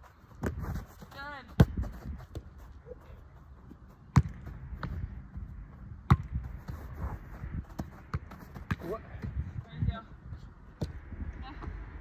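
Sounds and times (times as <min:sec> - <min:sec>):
football kicked hard: 0:04.1 - 0:05.0, 0:06.0 - 0:06.8.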